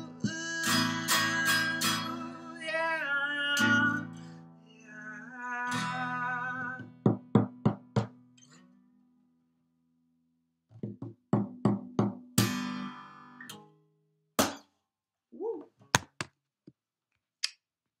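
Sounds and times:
acoustic guitar playing: 0.0 - 9.2, 11.4 - 14.6
sharp slap on guitar: 14.4 - 14.7.

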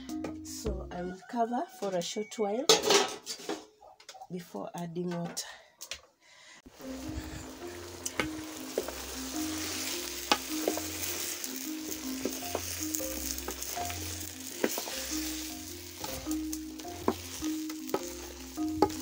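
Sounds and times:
soft background music: 0.0 - 2.7, 6.7 - 19.0
bananas sizzling in a pot: 6.7 - 19.0
wooden spoon knocking on pot: 14.5 - 15.1, 16.0 - 19.0.

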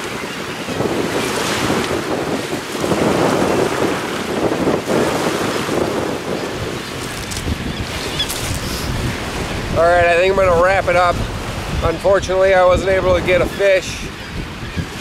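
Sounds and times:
waves washing onto pebbles: 0.0 - 9.7
wind buffeting microphone: 0.0 - 15.0.

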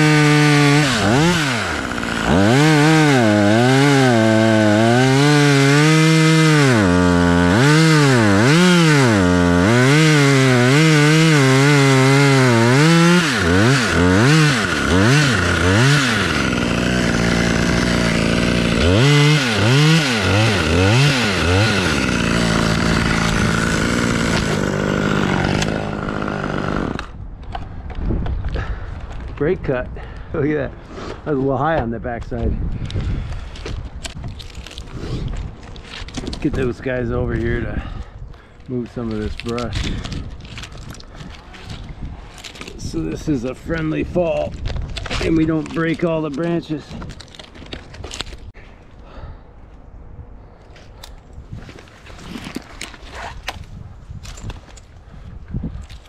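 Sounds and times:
chainsaw cutting wood: 0.0 - 27.2
chainsaw revving: 0.0 - 27.2.

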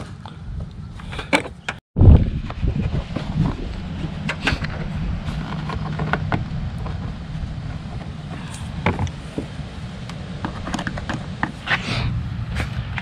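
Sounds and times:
vehicle engine hum: 2.2 - 13.0.

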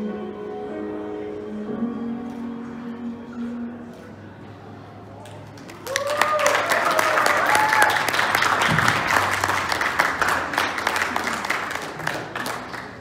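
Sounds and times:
people clapping: 5.2 - 13.0
person whooping: 5.9 - 8.1.

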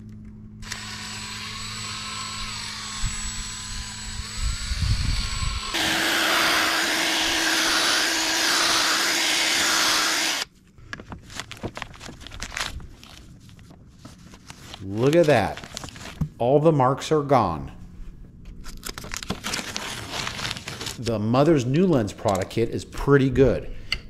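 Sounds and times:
cordless drill buffing: 0.6 - 10.5.

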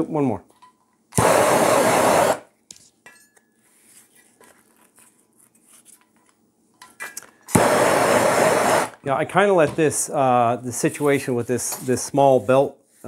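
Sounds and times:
gas torch flame hissing: 1.2 - 2.5, 7.5 - 9.0.

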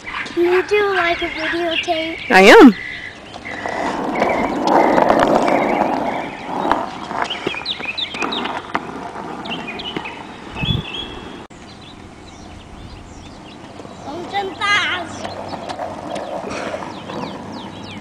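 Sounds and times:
skateboard wheels rolling on asphalt: 0.0 - 18.0
skateboard clicks: 15.0 - 17.5.

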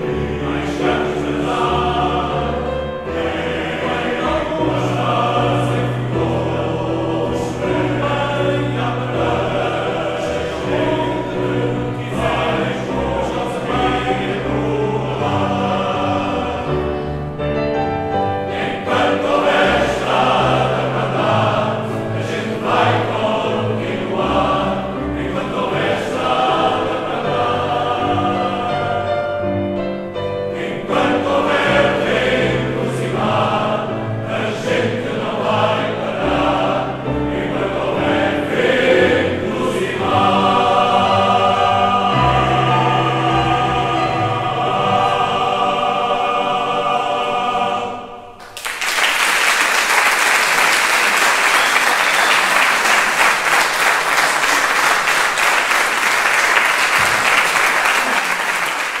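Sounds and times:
male choir singing: 0.0 - 48.4
audience applause: 48.4 - 59.0.

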